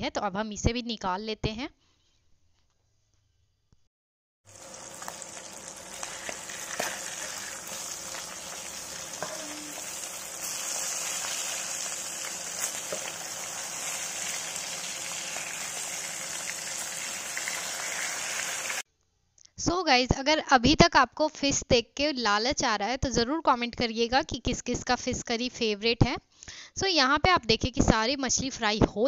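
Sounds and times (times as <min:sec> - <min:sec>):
fish frying in oil: 0:04.5 - 0:18.8.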